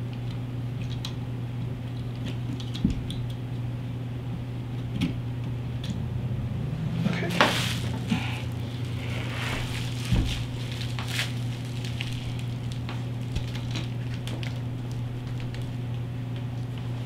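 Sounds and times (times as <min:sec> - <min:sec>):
steady low hum: 0:00.0 - 0:17.0
bubble wrap crinkling: 0:07.1 - 0:16.0.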